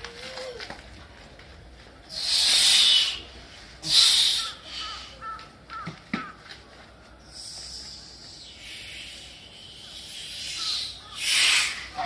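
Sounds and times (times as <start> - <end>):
hissing forced breaths: 8.4 - 11.9.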